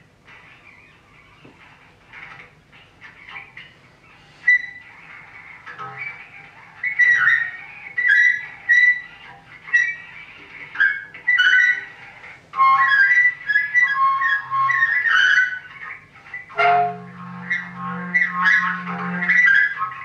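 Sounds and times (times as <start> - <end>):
bass clarinet high notes: 16.5 - 20.0.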